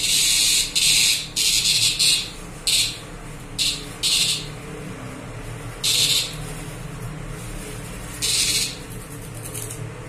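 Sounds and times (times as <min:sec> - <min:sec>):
cicada buzzing in harsh bursts: 0:03.6 - 0:04.5, 0:08.2 - 0:08.8.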